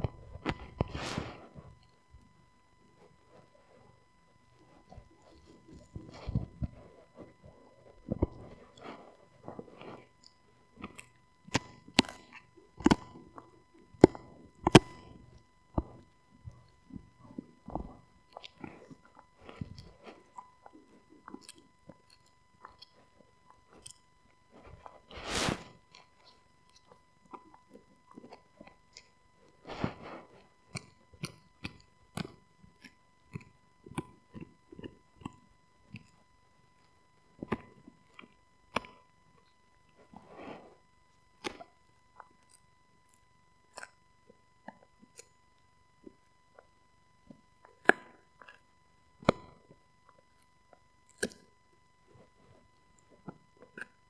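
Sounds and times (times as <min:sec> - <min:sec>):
dog chewing a bone: 0:25.9 - 0:36.2.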